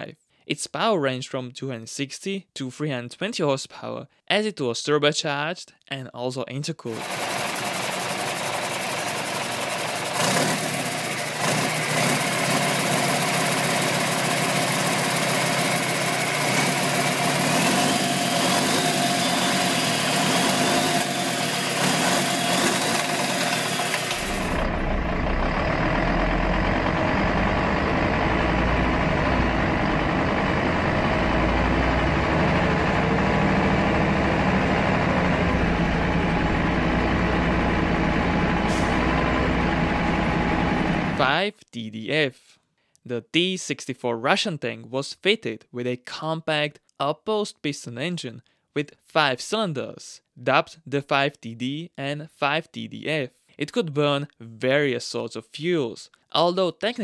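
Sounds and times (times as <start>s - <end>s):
diesel engine running: 7.0s - 41.3s
deep muffled engine: 24.3s - 41.2s.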